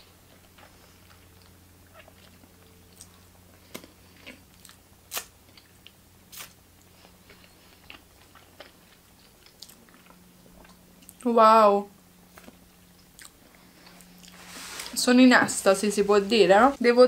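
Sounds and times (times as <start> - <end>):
faint low hum: 0.0 - 17.0
person chewing: 0.2 - 11.2, 12.2 - 14.4.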